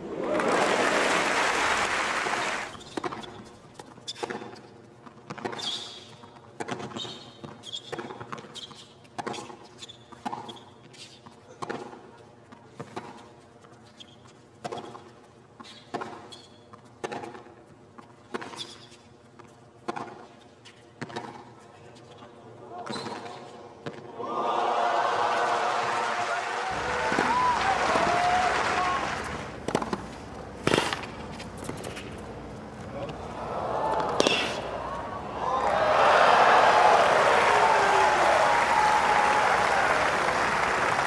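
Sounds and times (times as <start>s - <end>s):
crowd applause: 0.0s - 2.7s, 24.2s - 29.8s, 33.0s - 41.0s
shoes squeaking on hard court: 2.7s - 11.9s, 12.7s - 17.4s, 18.0s - 24.0s, 29.2s - 33.2s
tennis ball struck by racquets: 26.8s - 33.2s, 33.8s - 35.0s.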